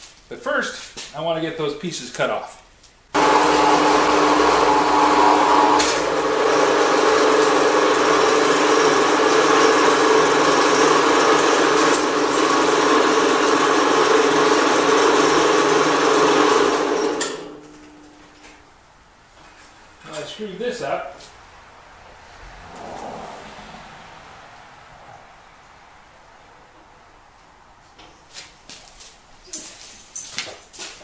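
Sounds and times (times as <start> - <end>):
band saw running: 3.2 - 17.7.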